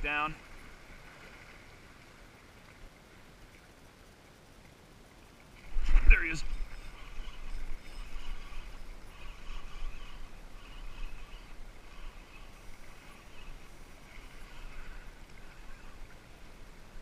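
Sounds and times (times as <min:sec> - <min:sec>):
low wind rumble: 0:05.6 - 0:17.0.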